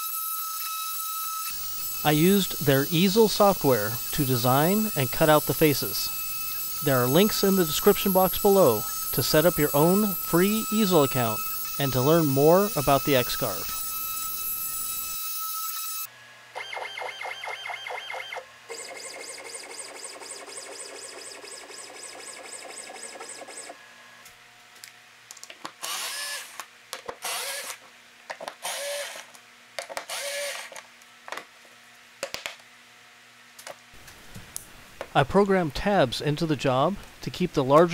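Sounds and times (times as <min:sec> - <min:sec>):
router spindle whining while cutting: 0:00.0 - 0:16.1.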